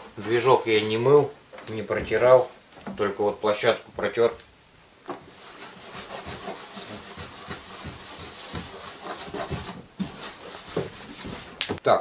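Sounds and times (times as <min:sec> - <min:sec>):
rag scrubbing plastic: 0:00.0 - 0:01.2, 0:05.2 - 0:11.6.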